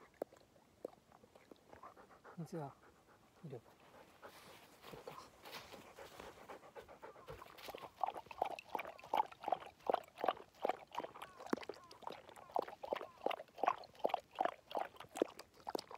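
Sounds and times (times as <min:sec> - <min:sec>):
dog chewing and smacking: 0:00.0 - 0:03.6, 0:04.2 - 0:15.9.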